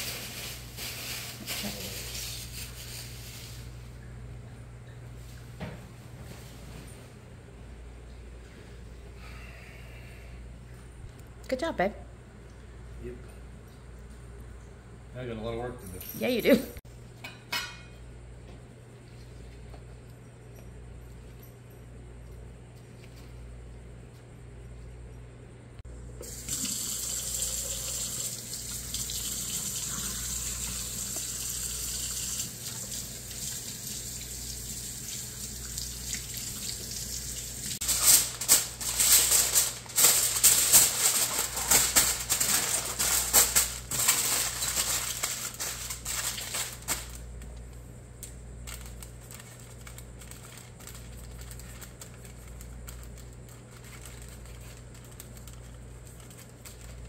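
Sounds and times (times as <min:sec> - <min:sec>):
aluminium foil crinkling: 0:00.0 - 0:03.9, 0:37.8 - 0:57.0.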